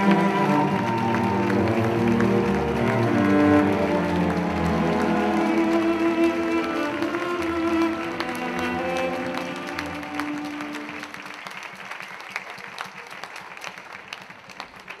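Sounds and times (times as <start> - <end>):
music with sustained notes: 0.0 - 11.4
audience applauding: 0.0 - 15.0.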